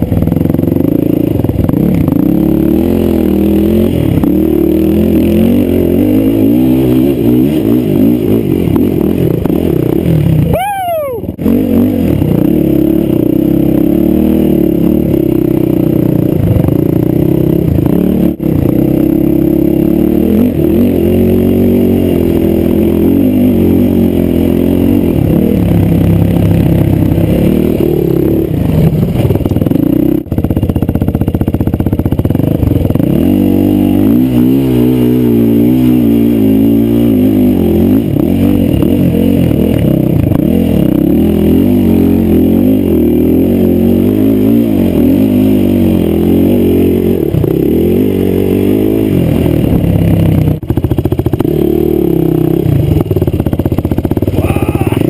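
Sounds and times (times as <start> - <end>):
quad engine revving: 0.0 - 55.0.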